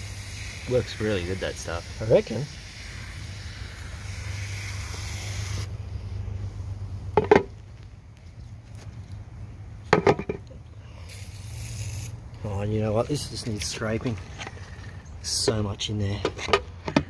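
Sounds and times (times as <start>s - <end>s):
aerosol can spraying: 0.0s - 5.8s, 11.1s - 12.2s.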